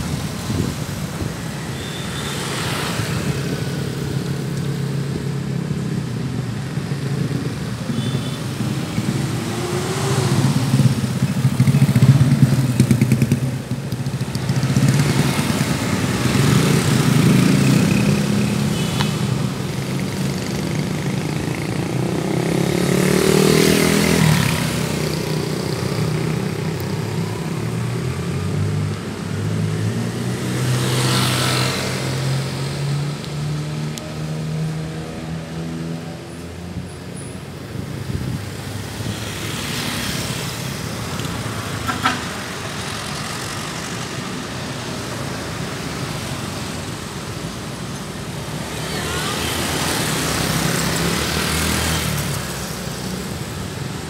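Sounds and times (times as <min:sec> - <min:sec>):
motorcycle and car engines passing: 0:00.0 - 0:54.0.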